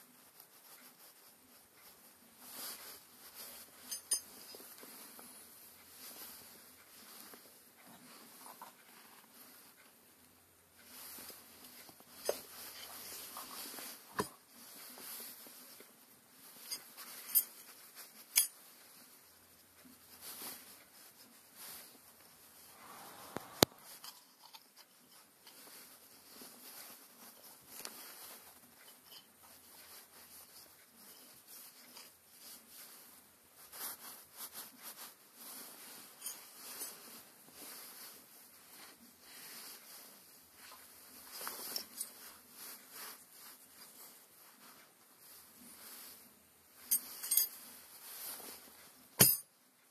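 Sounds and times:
faint rubbing of parts: 0.0 - 49.9
hands and clothing rustling: 0.0 - 49.9
metal parts clicking and knocking: 3.8 - 4.4.

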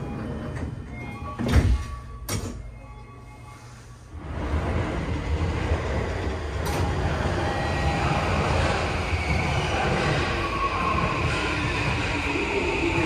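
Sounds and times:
subway train running noise: 0.0 - 13.0.

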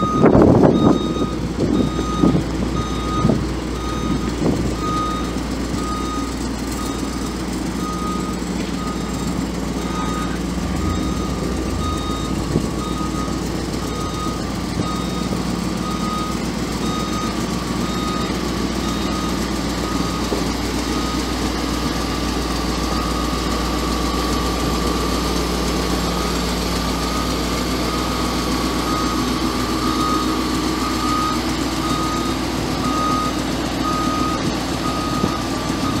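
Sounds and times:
truck engine idling: 0.0 - 36.0
electronic warning beeps: 7.8 - 19.3.

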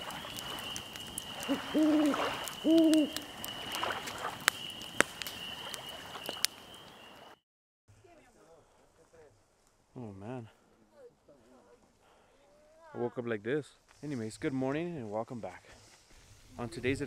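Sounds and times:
owl hooting: 0.0 - 4.0.

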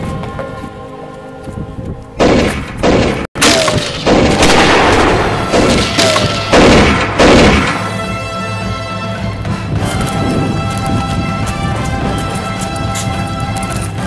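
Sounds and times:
gunshots: 2.2 - 8.0.

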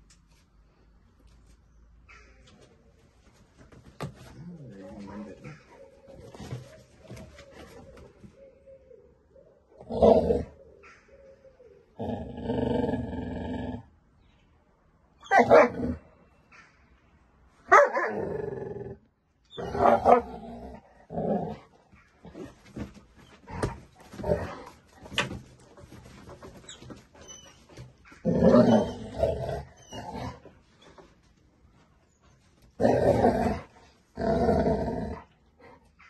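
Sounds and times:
dogs barking and growling: 4.2 - 8.0, 9.7 - 10.6, 15.2 - 16.1, 17.7 - 26.3, 27.8 - 30.6, 32.7 - 36.0.

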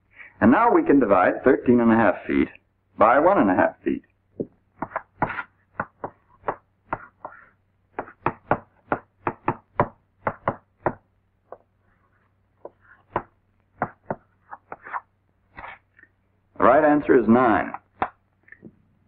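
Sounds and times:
chalk tapping on blackboard: 4.8 - 11.7, 12.6 - 15.0.

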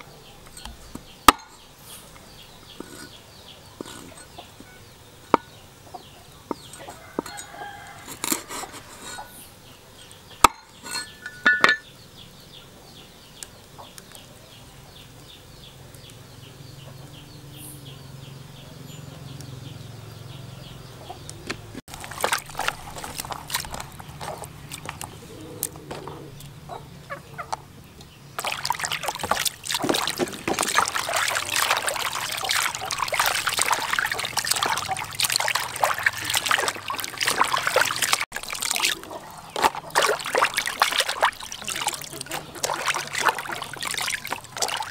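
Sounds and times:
water sloshing in basin: 6.5 - 9.4, 10.4 - 11.9, 21.6 - 26.6, 28.3 - 44.9.

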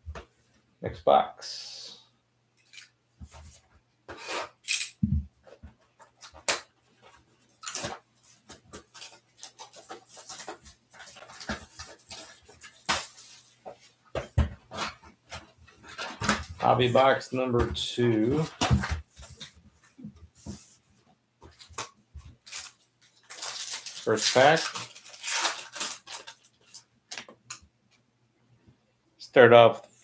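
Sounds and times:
plastic shrink wrap crinkling: 22.4 - 27.2.

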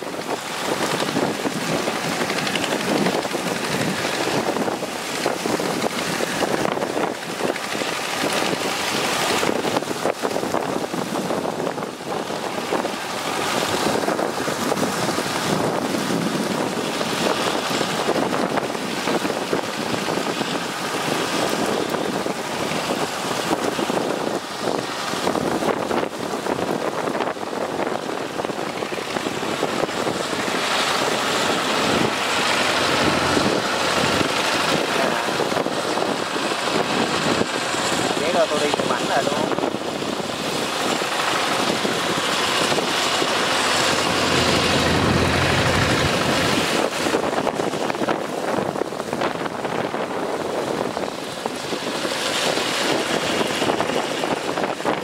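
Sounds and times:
wind noise on microphone: 0.0 - 55.0
distant small engines running: 40.7 - 47.4.

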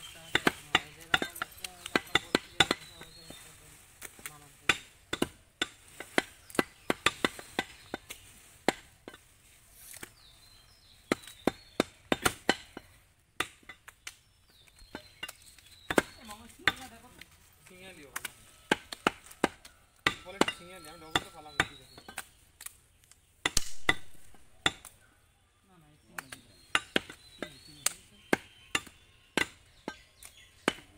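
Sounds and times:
cleaver chopping meat on wood: 0.2 - 3.1, 4.6 - 9.2, 11.0 - 14.0, 18.2 - 22.3, 26.2 - 27.6, 28.2 - 30.9.

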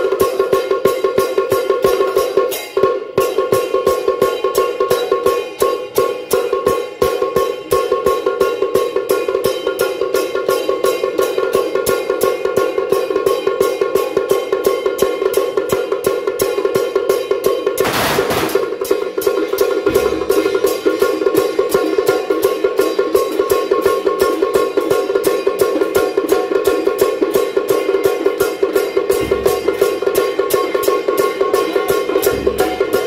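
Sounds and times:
drum beating: 15.6 - 24.2, 24.8 - 33.0
cymbals crashing: 16.4 - 33.0
gongs ringing: 29.1 - 30.7, 31.6 - 33.0.

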